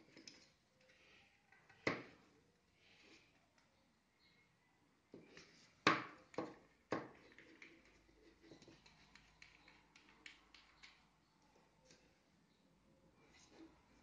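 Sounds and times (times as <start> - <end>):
light ticking and rubbing: 7.1 - 12.2.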